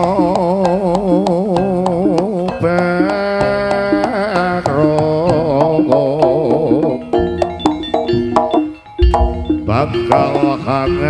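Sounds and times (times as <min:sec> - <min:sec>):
drum and metal percussion: 0:00.0 - 0:11.0
wavering lead melody: 0:03.6 - 0:11.0.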